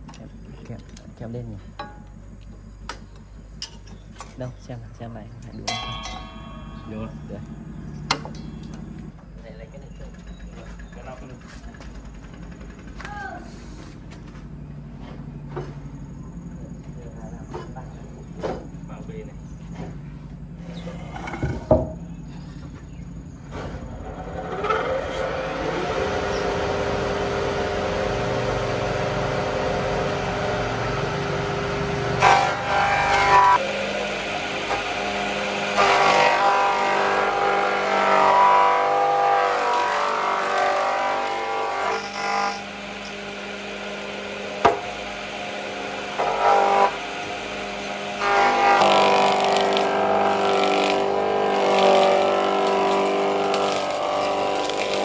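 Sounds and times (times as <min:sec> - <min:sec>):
planer cutting wooden board: 0:24.0 - 0:55.0
planer motor humming: 0:24.0 - 0:55.0.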